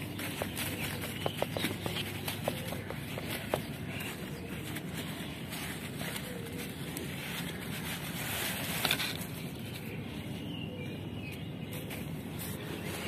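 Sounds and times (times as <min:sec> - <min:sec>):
hands rustling through soil: 0:00.0 - 0:13.0.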